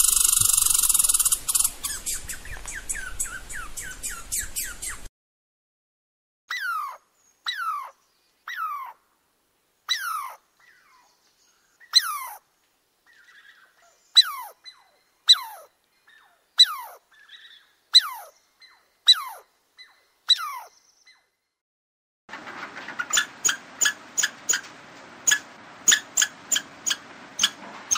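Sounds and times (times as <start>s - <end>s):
animal crying: 6.5s - 7.9s, 8.5s - 9.0s, 9.9s - 11.0s, 16.6s - 17.0s, 20.3s - 20.7s.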